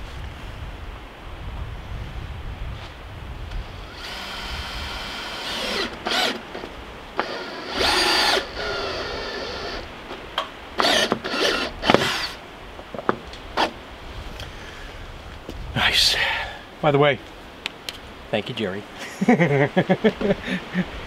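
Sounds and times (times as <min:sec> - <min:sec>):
power driver driving screws into wood: 0:03.9 - 0:09.8, 0:10.8 - 0:12.4.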